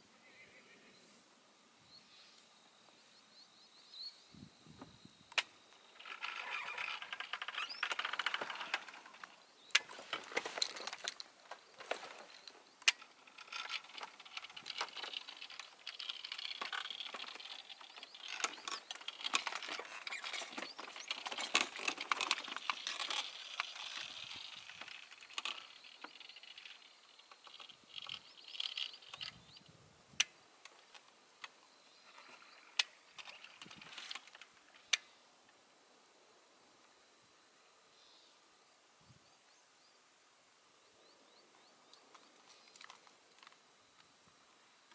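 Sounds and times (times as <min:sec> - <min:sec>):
faint high hiss: 0:00.0 - 0:44.9
small sharp clicks: 0:05.3 - 0:35.6.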